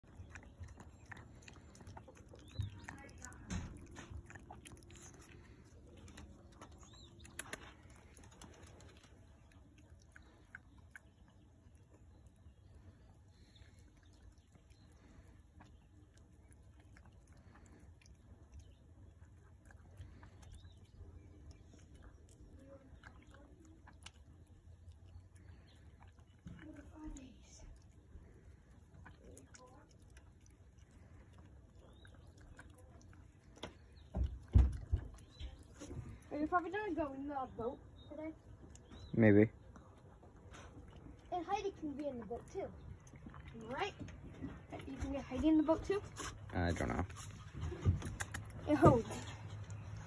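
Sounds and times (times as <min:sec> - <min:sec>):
wet clicks and smacks: 0:00.0 - 0:12.3, 0:15.5 - 0:37.0, 0:47.8 - 0:50.0
dog chewing fruit: 0:00.0 - 0:50.0.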